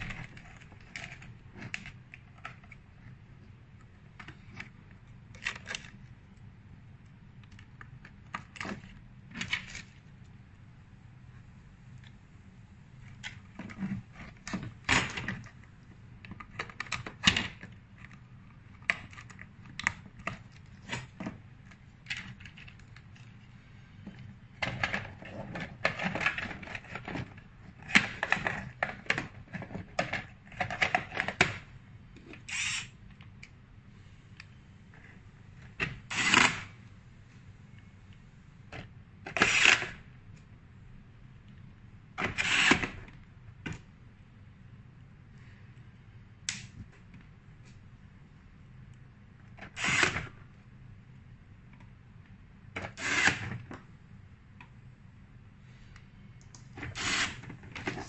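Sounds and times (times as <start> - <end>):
plastic scraping: 56.8 - 58.0.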